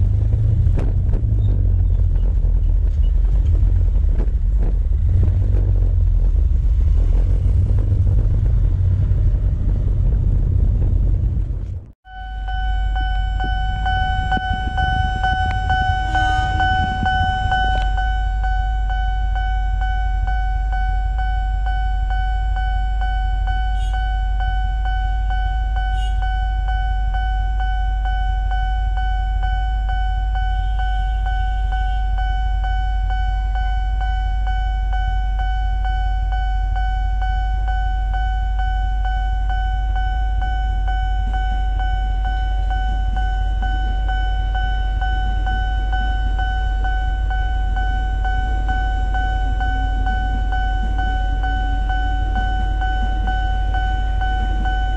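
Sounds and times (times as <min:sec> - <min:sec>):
idling engines rumble: 0:00.0 - 0:54.9
level crossing warning bell: 0:12.0 - 0:54.9.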